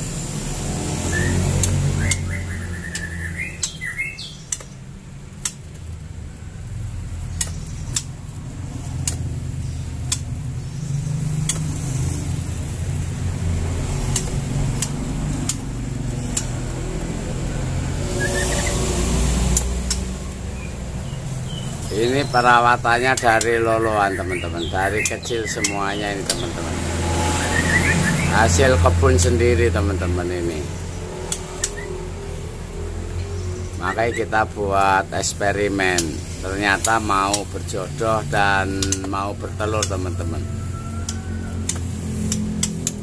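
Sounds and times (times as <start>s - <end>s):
birds chirping: 0.0s - 43.0s
sharp clicks: 1.5s - 6.1s, 7.2s - 10.7s, 11.3s - 13.0s, 13.6s - 17.2s, 18.0s - 23.7s, 24.4s - 26.6s, 30.8s - 33.8s, 35.9s - 40.0s, 40.9s - 43.0s.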